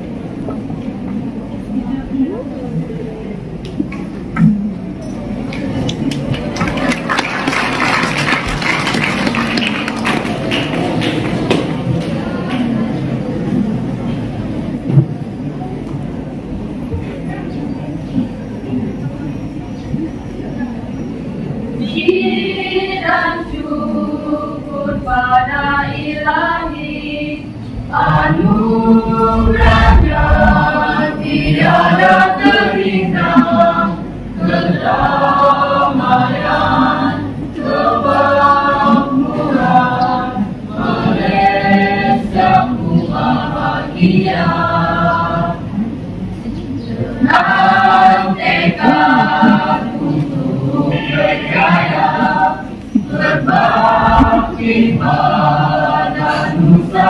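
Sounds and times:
choir singing a cappella: 21.6 - 46.2, 46.8 - 57.0.

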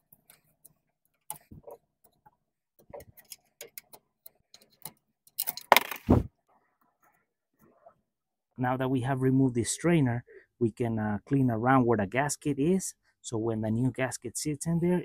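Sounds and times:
metal tool clicking and scraping: 0.0 - 5.7.

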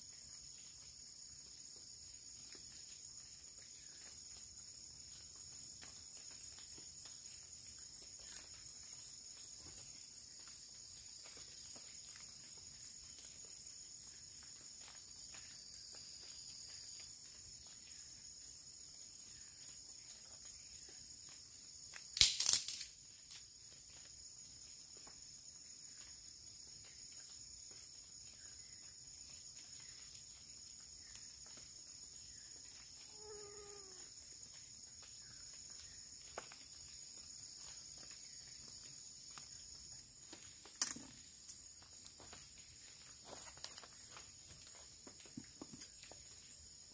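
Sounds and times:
insects droning: 0.0 - 46.9
loud crackle: 22.2 - 23.4.

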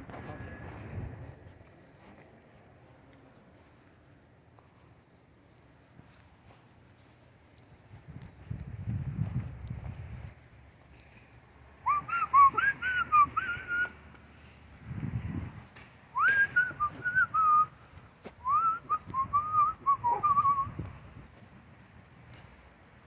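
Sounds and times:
whistling: 11.8 - 14.0, 16.2 - 17.8, 18.4 - 20.8.

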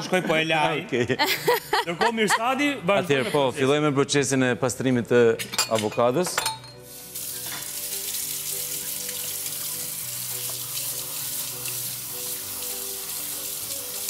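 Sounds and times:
quiet background music: 0.0 - 14.0
tap water running into sink: 7.0 - 14.0.

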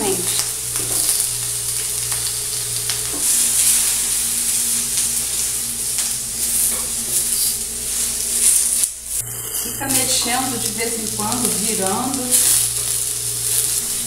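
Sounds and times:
vegetables sizzling on a griddle: 0.0 - 14.0
spatula scraping a griddle: 3.1 - 10.4.

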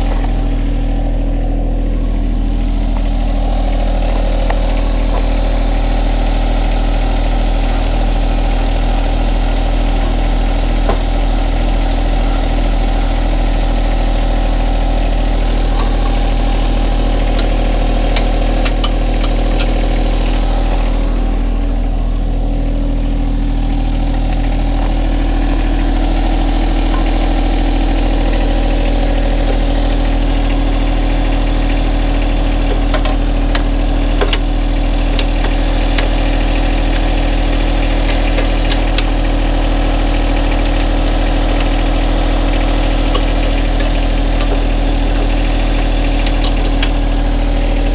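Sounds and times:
tractor diesel engine running: 0.0 - 47.9
metal parts clicking and knocking: 43.1 - 47.2.

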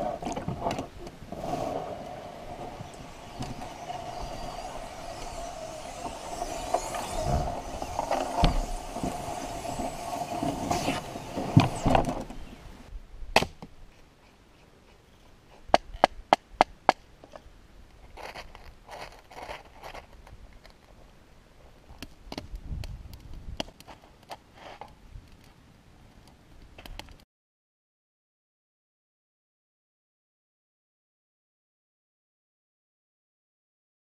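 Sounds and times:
canoe hull scraping on grass: 1.3 - 12.4.

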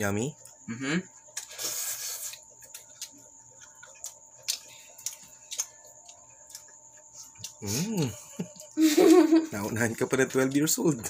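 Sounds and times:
soft chewing clicks: 2.2 - 8.8, 9.7 - 11.0.

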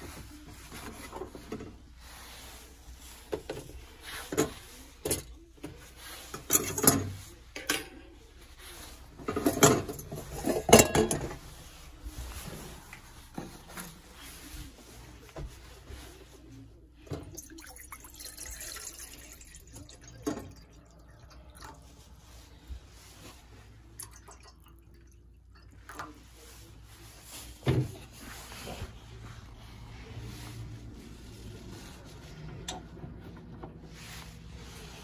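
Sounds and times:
kitchen utensils clattering: 6.2 - 8.2, 9.2 - 11.6.

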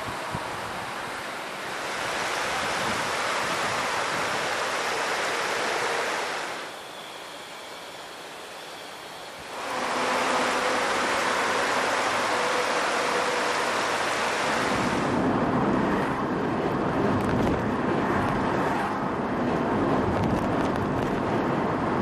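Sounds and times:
car tyre and road noise: 0.0 - 22.0
bright rushing noise: 4.6 - 15.2.

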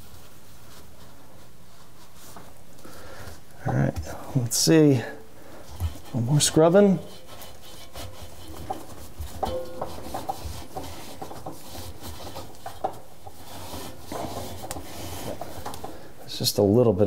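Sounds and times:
sponge scrubbing rubber gasket: 5.8 - 15.8.

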